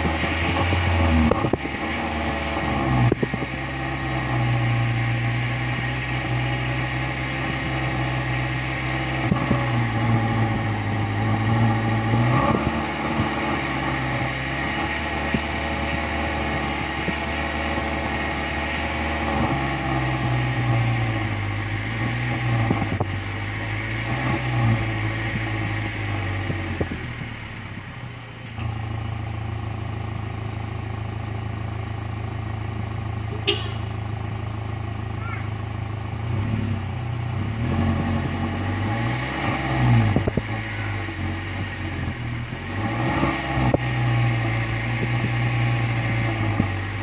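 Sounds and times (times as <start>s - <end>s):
car engine revving at exhaust: 0.0s - 47.0s.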